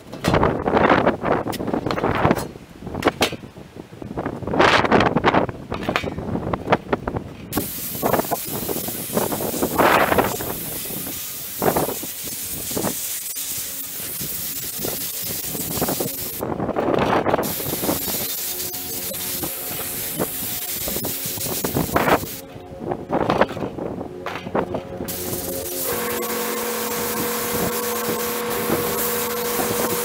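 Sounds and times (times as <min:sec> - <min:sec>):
wind buffeting microphone: 0:00.0 - 0:25.7
sandblaster hissing: 0:07.5 - 0:16.5, 0:17.4 - 0:22.4, 0:25.1 - 0:30.0.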